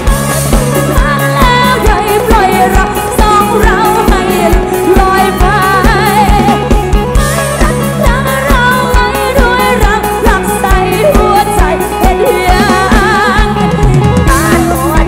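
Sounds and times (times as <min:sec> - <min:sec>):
steady drum beat: 0:00.0 - 0:15.0.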